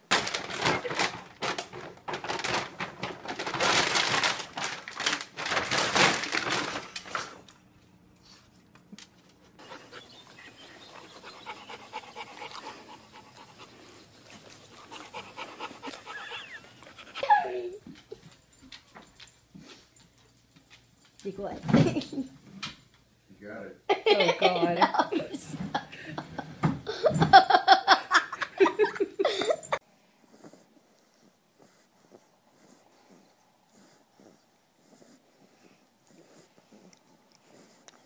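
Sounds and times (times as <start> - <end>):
plastic bag rustling: 0.0 - 7.6
puppy panting: 9.4 - 18.4, 29.3 - 38.0.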